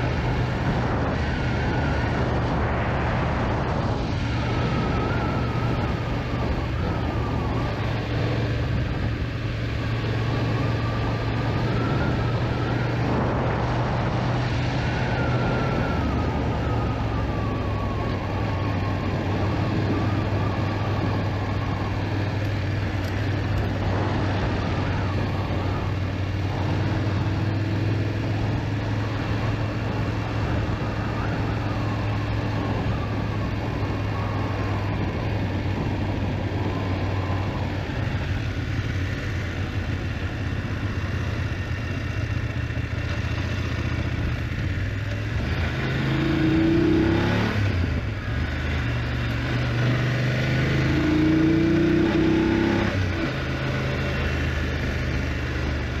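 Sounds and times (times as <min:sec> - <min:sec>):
wind rush: 0:00.0 - 0:53.5
motorcycle engine running: 0:34.8 - 0:46.8.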